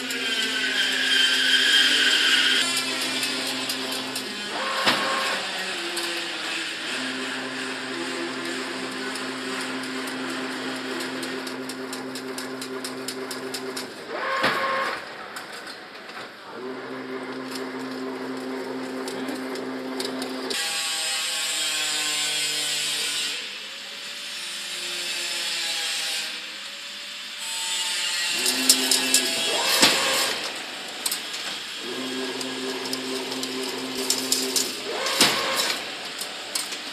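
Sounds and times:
machine motor hum: 0.0 - 15.2, 16.4 - 20.6, 28.2 - 36.9
rapid metallic clicking: 8.2 - 13.9, 28.4 - 36.9.

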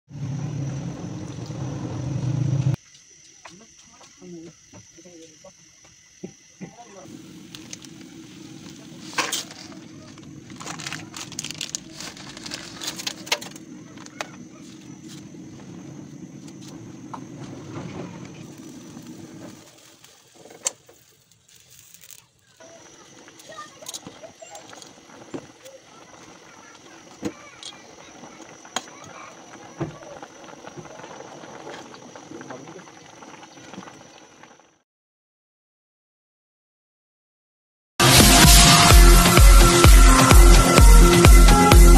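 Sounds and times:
water boiling in a pot: 2.8 - 34.8
plastic bag crinkling: 8.6 - 14.4, 18.4 - 22.6.

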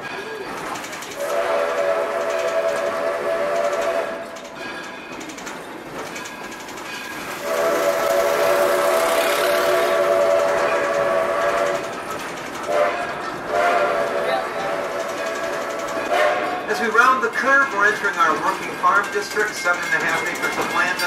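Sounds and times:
train rolling along: 0.0 - 21.0
steam locomotive whistle blasts: 1.2 - 4.4, 7.4 - 11.9, 12.7 - 16.6.

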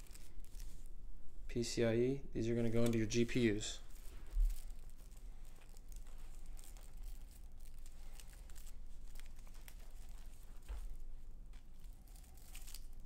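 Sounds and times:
low steady hum: 0.0 - 13.0
faint rustling: 2.7 - 13.0.

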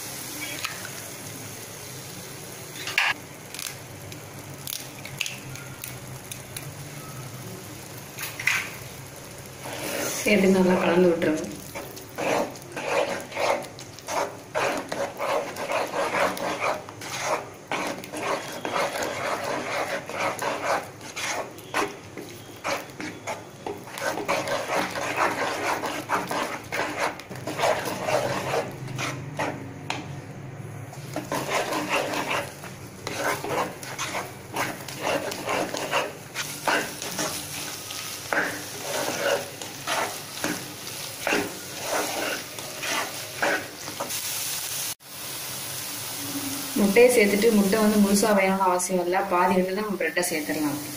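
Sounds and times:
frying sizzle: 0.0 - 50.9
spatula scraping pan: 9.5 - 30.0, 30.9 - 44.2.

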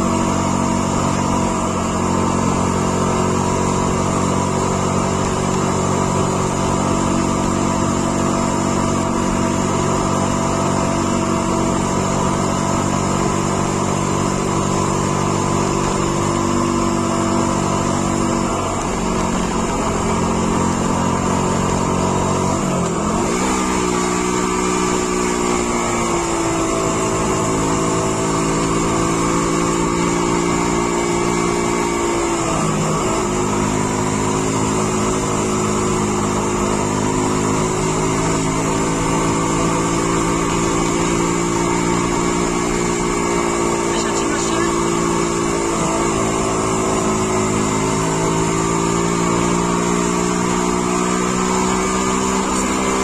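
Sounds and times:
vehicle engine under load: 0.0 - 53.0.

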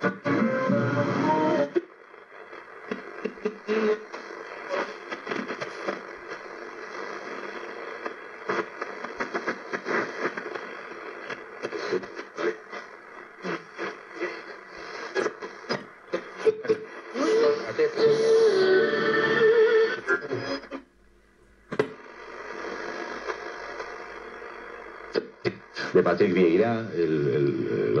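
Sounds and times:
radio static hiss and crackle: 0.0 - 28.0
radio clicks: 2.1 - 17.1, 21.4 - 26.6.

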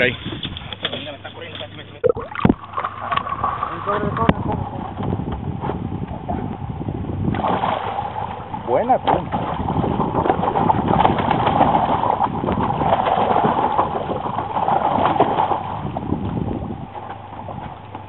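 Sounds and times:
boat motor running: 0.0 - 18.0
fish thrashing and splashing: 7.3 - 18.0.

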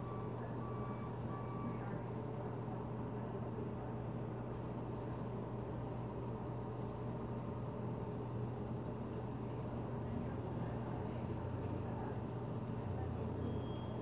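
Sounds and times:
diesel truck engine humming: 0.0 - 2.1.

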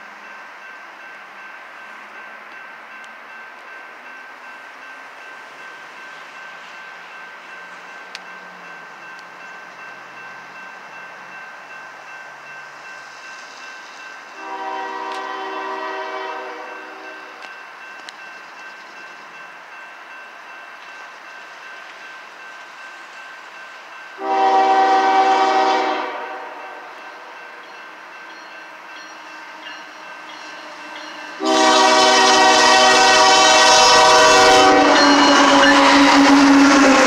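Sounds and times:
crossing warning bell ringing: 0.0 - 37.0
train air horn blast: 14.3 - 17.2, 24.2 - 27.0, 31.4 - 37.0.

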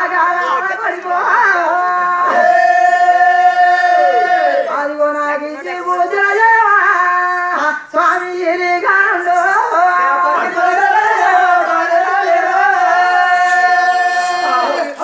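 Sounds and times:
men singing loudly: 9.3 - 15.0.

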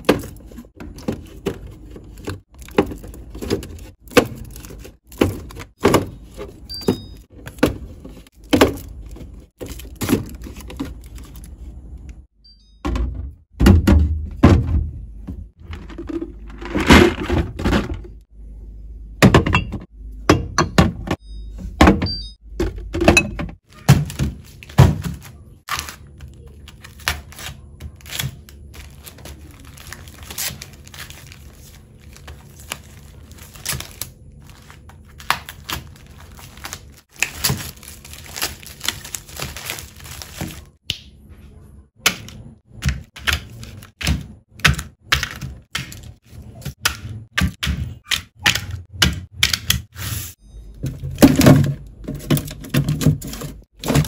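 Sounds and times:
drink boxes clattering: 12.9 - 18.2, 19.2 - 25.2, 50.8 - 54.0
plastic wrap crinkling and tearing: 25.7 - 40.8.

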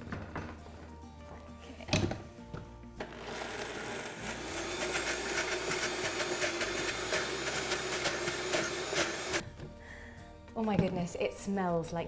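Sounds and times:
blender grinding nuts: 3.0 - 9.4.

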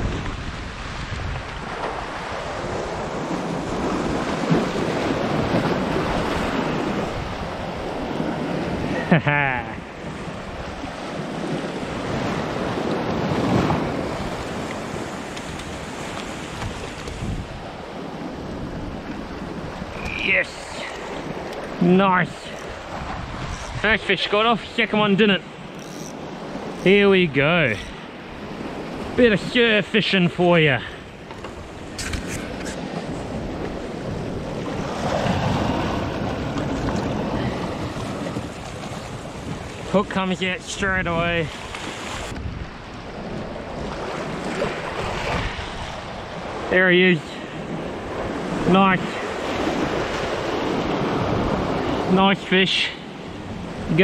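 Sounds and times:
wind buffeting microphone: 0.0 - 9.1, 10.0 - 21.8, 22.6 - 24.0, 40.9 - 46.7
surf washing over rocks: 0.0 - 54.0.

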